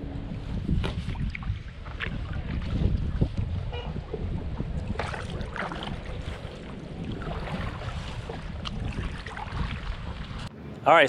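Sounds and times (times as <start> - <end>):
water lapping around kayaks: 0.0 - 10.5
wind buffeting the microphone: 0.0 - 10.5.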